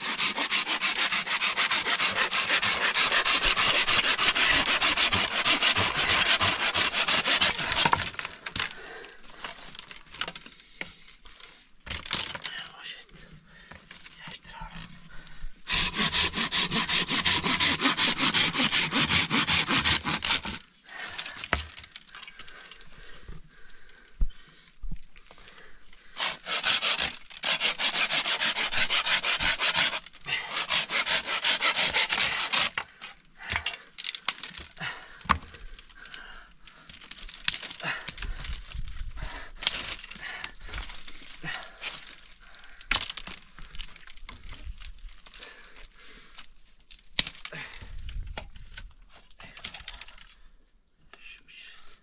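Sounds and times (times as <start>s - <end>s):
hand saw cutting wood: 0.0s - 8.2s, 15.7s - 20.7s, 26.2s - 33.1s
knocks and rustling of sticks: 7.4s - 12.6s, 21.2s - 23.4s, 39.6s - 45.4s.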